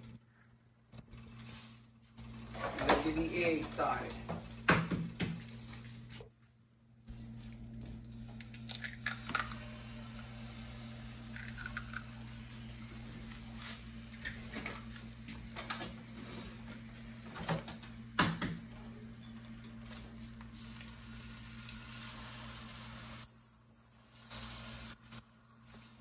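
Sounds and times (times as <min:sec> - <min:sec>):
egg sizzling in a pan: 0:20.5 - 0:26.0.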